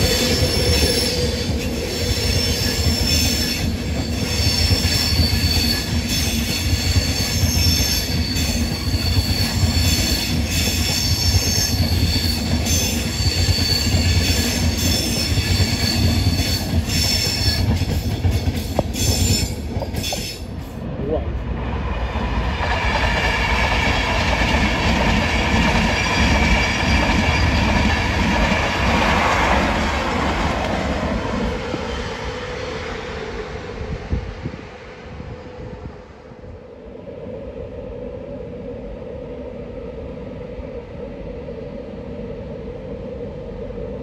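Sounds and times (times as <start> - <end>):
high-pitched wheel squeal: 0.0 - 18.0
train wheels rumbling on rails: 0.0 - 37.6.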